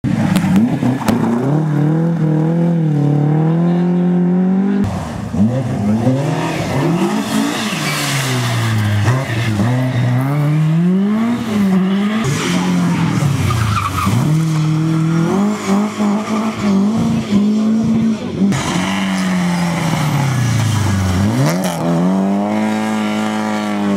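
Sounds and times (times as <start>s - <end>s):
rally car engines revving: 0.0s - 23.9s
tyres skidding on loose surface: 5.7s - 17.5s.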